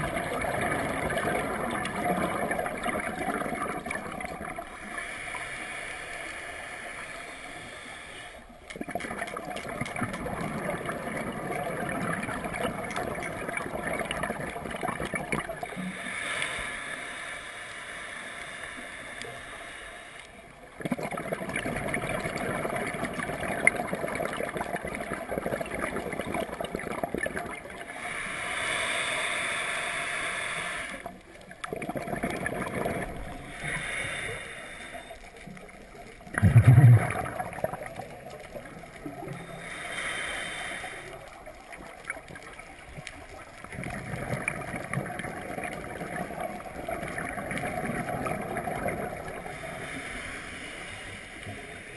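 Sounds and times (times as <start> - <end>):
gurgling exhaled bubbles: 0.0 - 5.0, 8.7 - 16.0, 20.8 - 28.0, 31.0 - 34.0, 35.4 - 39.8, 41.3 - 50.0
hissing regulator inhalation: 4.8 - 8.5, 27.9 - 31.3, 32.9 - 35.7, 39.0 - 41.9, 49.2 - 51.9.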